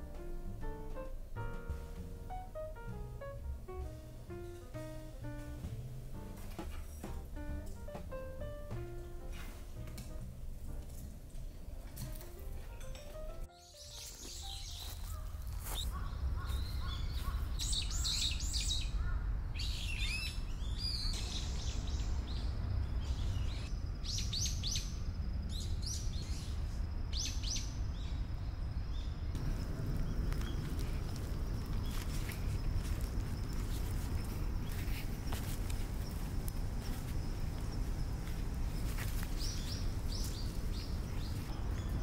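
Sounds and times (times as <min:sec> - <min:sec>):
low outdoor rumble: 0:00.0 - 0:12.0, 0:21.2 - 0:42.0
small birds chirping: 0:13.6 - 0:42.0.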